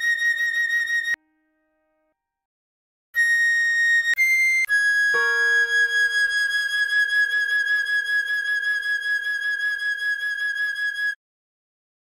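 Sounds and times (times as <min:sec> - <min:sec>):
recorder holding high note: 0:05.2 - 0:06.8
soft low accompanying note: 0:05.2 - 0:06.8.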